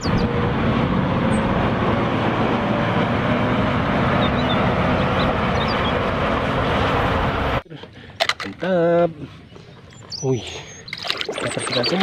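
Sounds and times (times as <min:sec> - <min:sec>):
tires driving across gravel: 0:00.0 - 0:07.6
wheel loader diesel engine running: 0:00.0 - 0:07.6.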